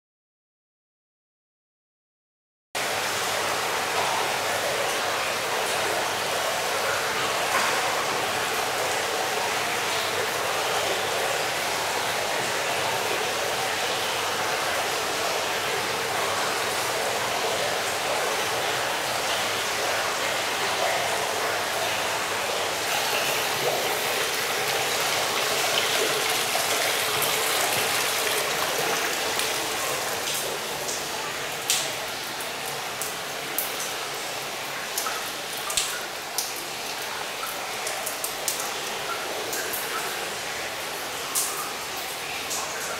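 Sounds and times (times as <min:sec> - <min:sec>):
running water rushing: 0:02.8 - 0:42.9
water drops: 0:34.9 - 0:40.1.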